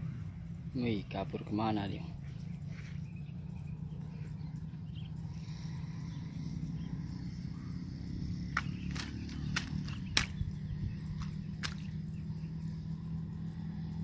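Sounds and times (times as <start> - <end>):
insects chirring: 0.0 - 14.0
steady low rumble: 0.0 - 14.0.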